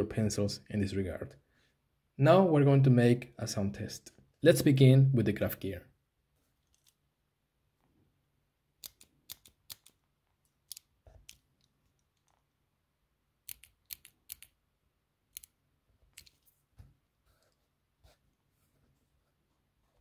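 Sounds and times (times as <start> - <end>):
mechanical pencil clicking: 8.8 - 10.0, 13.4 - 14.6, 15.3 - 15.6.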